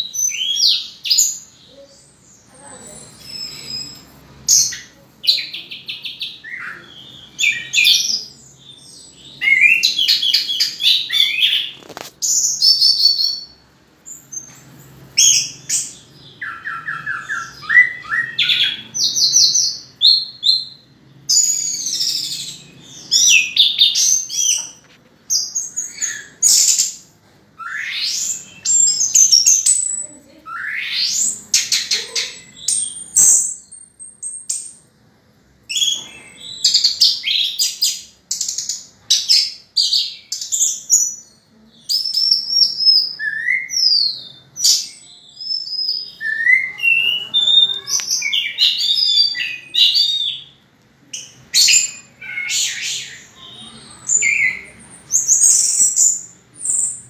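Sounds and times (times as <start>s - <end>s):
thrush singing trills and whistles: 0.0s - 14.5s, 15.2s - 24.8s, 27.6s - 34.8s, 35.7s - 50.6s, 51.2s - 57.0s.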